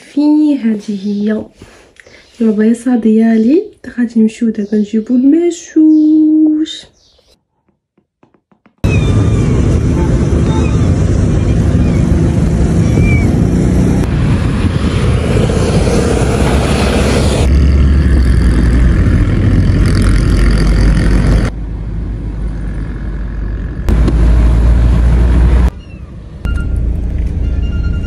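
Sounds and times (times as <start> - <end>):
car road noise rumble: 8.8 - 28.0
passing traffic rush: 8.8 - 28.0
street traffic noise: 8.8 - 28.0.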